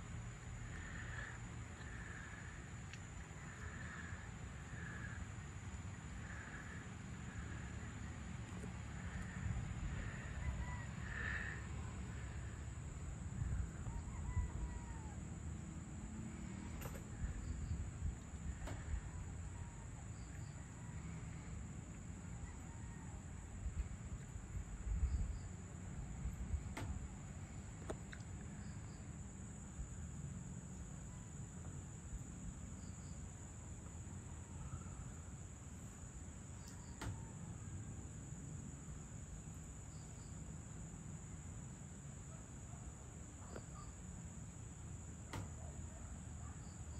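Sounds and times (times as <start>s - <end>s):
insects trilling high: 0.5s - 23.5s
faint ticks: 2.8s - 3.1s, 36.6s - 37.2s.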